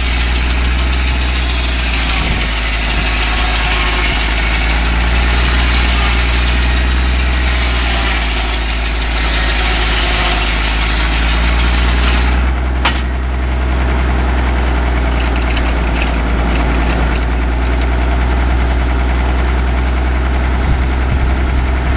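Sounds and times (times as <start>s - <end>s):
circular saw cutting log: 0.0s - 20.4s
tractor engine running: 0.0s - 21.9s
sharp click: 12.9s - 13.1s.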